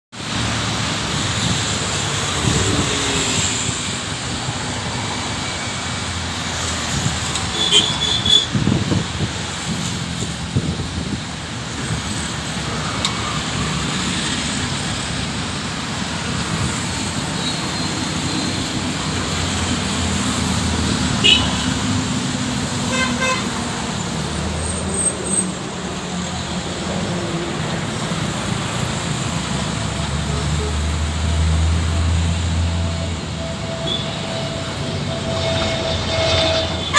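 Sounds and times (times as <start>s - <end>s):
road traffic passing: 0.1s - 36.9s
vehicle horn beeping: 7.5s - 8.6s, 21.2s - 21.9s, 22.9s - 23.6s, 33.4s - 36.9s
wind buffeting microphone: 8.5s - 12.1s.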